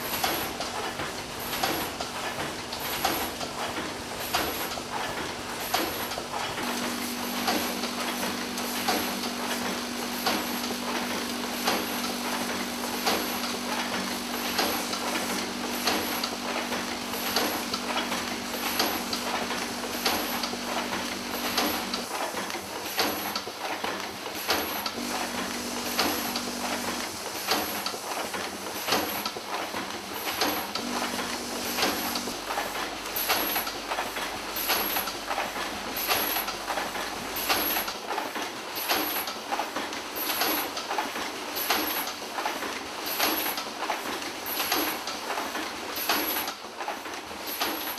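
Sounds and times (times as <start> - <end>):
machine clicking and clacking: 0.0 - 47.9
steady machine hum: 1.3 - 23.4, 24.7 - 29.1, 30.2 - 37.6.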